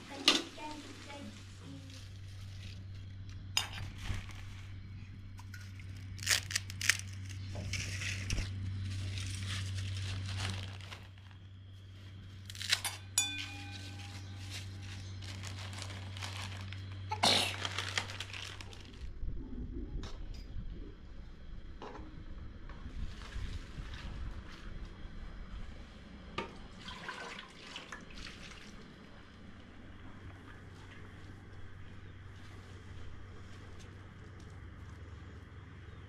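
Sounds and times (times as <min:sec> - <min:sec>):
crinkling and rustling: 0:00.0 - 0:19.2
steady low hum: 0:00.0 - 0:36.0.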